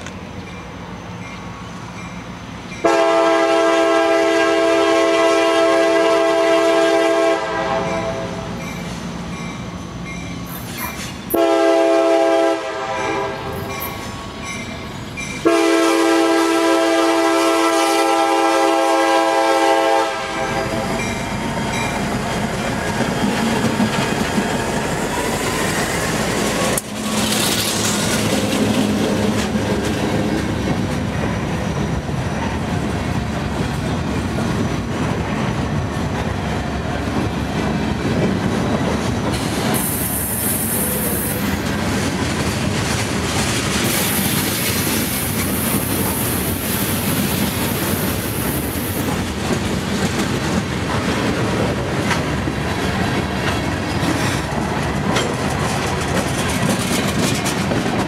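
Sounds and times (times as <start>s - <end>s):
freight train rolling past: 0.0s - 58.0s
wheels clicking over rail joints: 21.0s - 39.9s, 40.9s - 58.0s.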